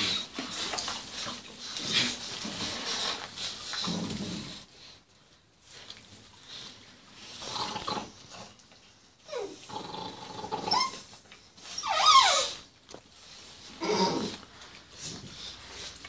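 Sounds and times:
puppies whining and yelping: 0:10.5 - 0:12.8.

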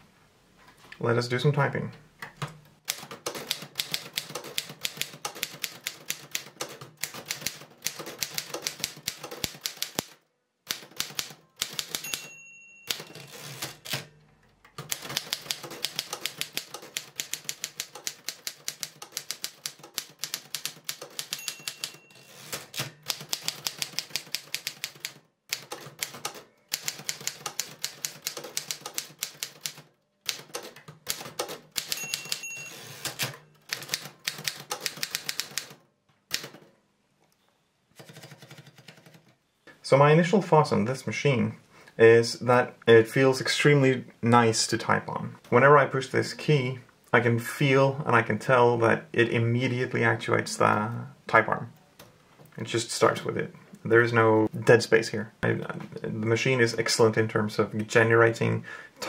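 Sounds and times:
typewriter keys striking: 0:02.9 - 0:12.3, 0:14.8 - 0:36.6
typewriter margin bell: 0:11.0 - 0:14.1, 0:20.6 - 0:24.0, 0:31.8 - 0:34.1.

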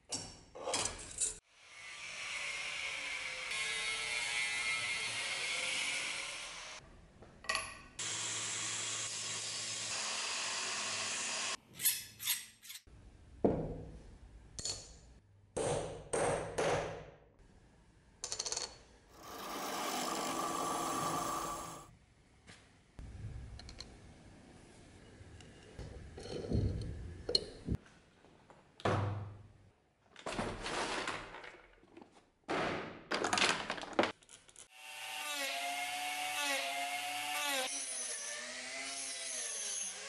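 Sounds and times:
angle grinder cutting metal: 0:19.2 - 0:21.9
shop tool noise: 0:19.2 - 0:21.9.

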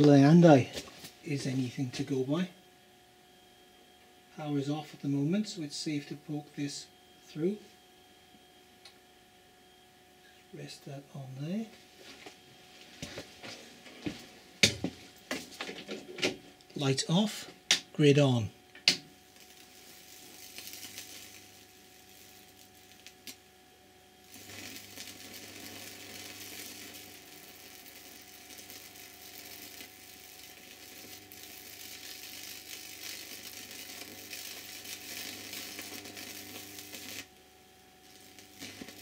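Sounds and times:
electric arcing crackling buzz: 0:00.0 - 0:02.5, 0:11.3 - 0:39.0
low transformer hum: 0:00.0 - 0:39.0.

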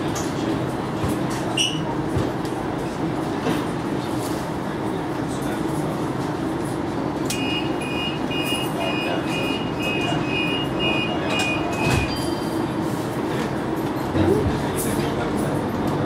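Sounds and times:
tram humming: 0:00.0 - 0:16.0
high-pitched door warning beeps: 0:07.3 - 0:12.6.

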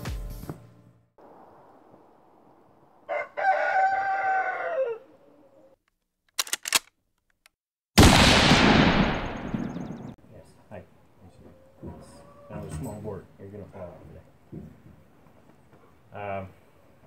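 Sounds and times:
rooster crowing: 0:03.0 - 0:05.8
sharp clicks: 0:05.8 - 0:07.6
loud bang: 0:08.0 - 0:10.1.

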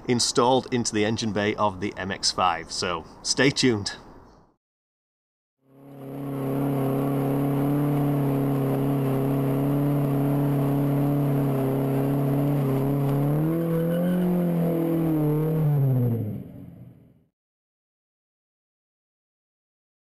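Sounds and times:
car engine at high revs: 0:05.7 - 0:17.1
wheels spinning on loose dirt: 0:05.8 - 0:15.8.

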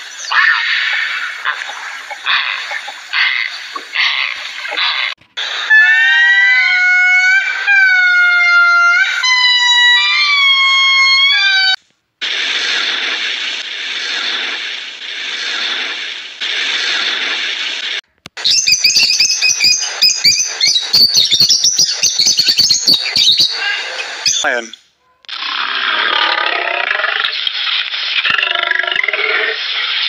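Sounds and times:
wavering tonal animal calls: 0:00.3 - 0:11.8
bird chirps and clicks: 0:18.2 - 0:23.6.

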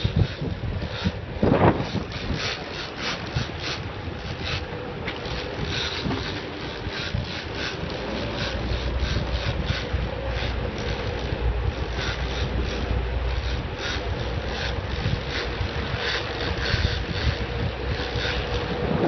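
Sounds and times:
boat engine rumble: 0:00.0 - 0:19.0
wind buffeting microphone: 0:00.0 - 0:19.0.

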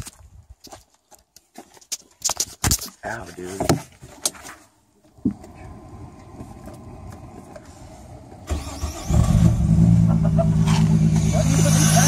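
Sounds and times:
car engine running loudly: 0:09.2 - 0:12.0.

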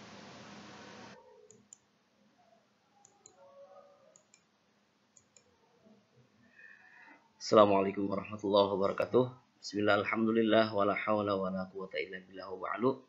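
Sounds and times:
steady hiss: 0:00.0 - 0:01.2
faint clicks: 0:03.0 - 0:03.4, 0:04.1 - 0:04.5, 0:05.2 - 0:05.5.

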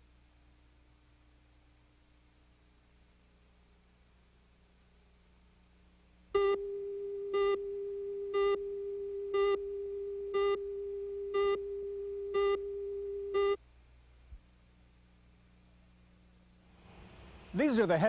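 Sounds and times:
buzzy beeps: 0:06.4 - 0:13.6
steady mid-pitched tone: 0:06.4 - 0:13.6.

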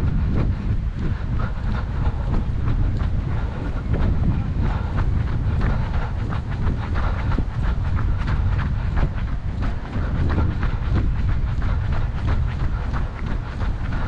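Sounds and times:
running footsteps on dirt: 0:00.0 - 0:14.0
wind buffeting microphone: 0:00.0 - 0:14.0.

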